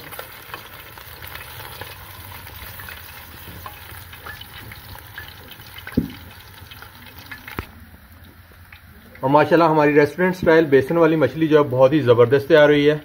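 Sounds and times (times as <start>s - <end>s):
fish sizzling in hot oil: 0.0s - 12.7s
sharp knock: 5.9s - 6.2s.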